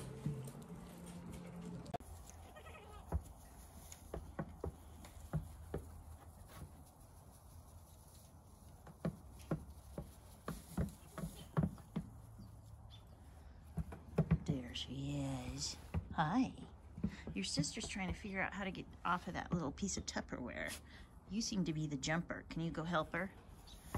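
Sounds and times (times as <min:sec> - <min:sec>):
goat kids bleating: 0:02.2 - 0:03.2.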